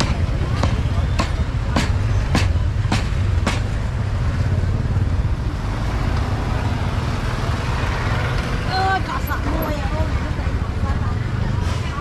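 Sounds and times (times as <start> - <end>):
sharp knocks: 0.0 - 3.8
low rumble of traffic: 0.0 - 12.0.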